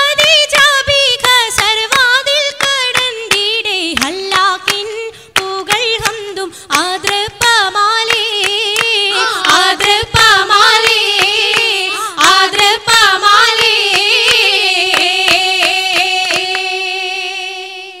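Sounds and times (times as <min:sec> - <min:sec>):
rhythmic hand claps: 0:00.0 - 0:17.3
voices singing a melody: 0:07.0 - 0:18.0.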